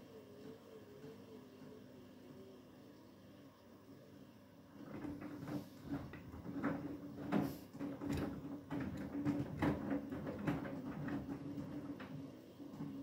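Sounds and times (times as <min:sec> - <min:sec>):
washing machine motor hum: 0:00.0 - 0:13.0
wet laundry sloshing and thudding: 0:04.8 - 0:13.0.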